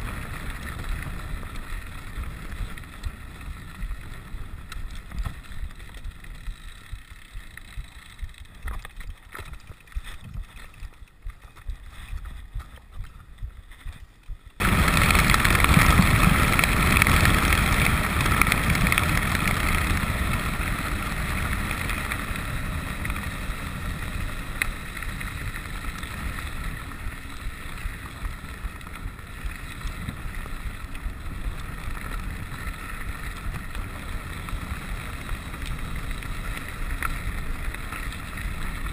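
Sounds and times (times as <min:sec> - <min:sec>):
bike tyres rolling on gravel: 0:00.0 - 0:38.9
wind rushing over microphone: 0:14.6 - 0:38.9.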